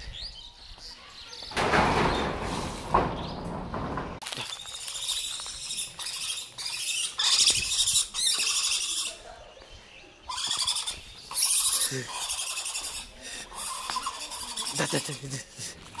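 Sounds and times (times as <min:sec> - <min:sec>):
monkey screeching: 0:04.5 - 0:09.2, 0:10.3 - 0:15.4.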